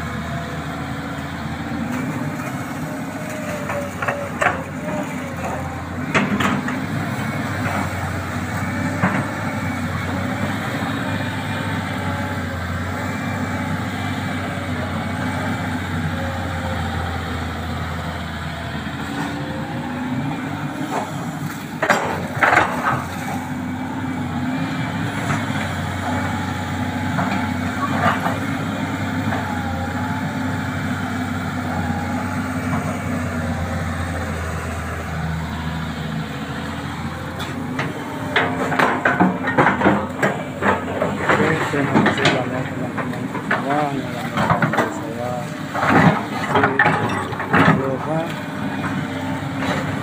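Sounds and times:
excavator diesel engine running: 0.0 - 50.0.

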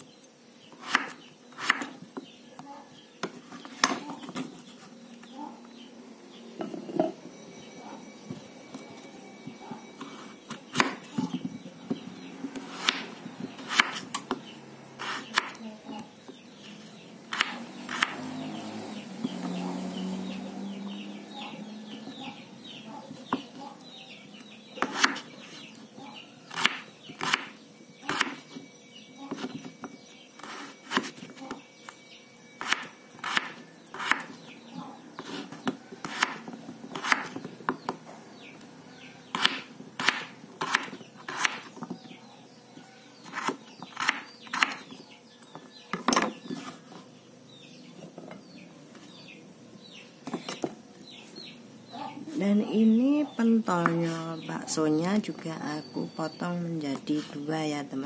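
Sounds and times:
knife chopping on wooden board: 0.8 - 2.0, 12.6 - 14.4, 15.0 - 15.6, 17.3 - 18.2, 24.8 - 25.3, 26.5 - 27.5, 28.1 - 28.6, 32.6 - 34.4, 35.2 - 38.0, 39.3 - 41.8, 43.2 - 45.0.

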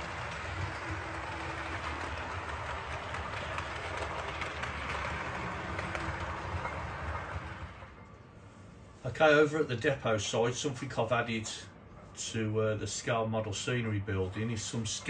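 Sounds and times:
wheels clicking over track: 0.0 - 8.1
model train rumbling: 0.0 - 8.3.

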